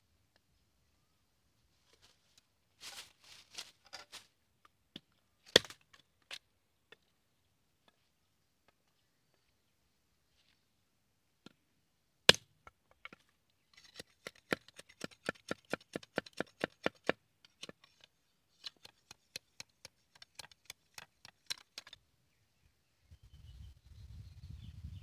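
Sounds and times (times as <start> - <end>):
machete chopping bamboo: 5.5 - 5.8, 12.3 - 12.5, 13.9 - 17.8.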